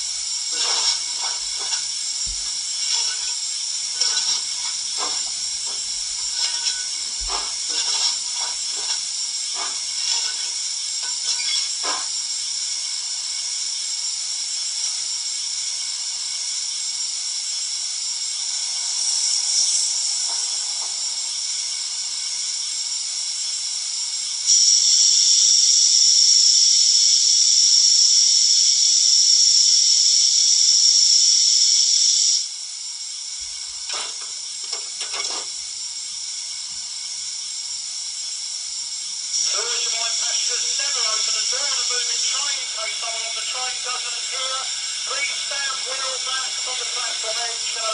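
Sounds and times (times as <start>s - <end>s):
loud steady hiss: 0.0s - 47.9s
steam hiss from small speaker: 0.0s - 47.9s.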